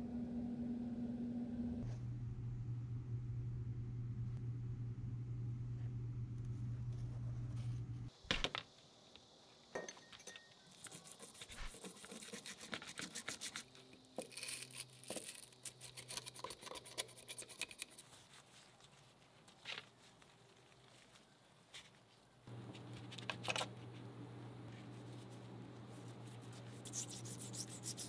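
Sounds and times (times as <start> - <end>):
steady low hum: 0.0 - 8.2, 22.4 - 28.0
stiff brush scrubbing: 10.7 - 28.0.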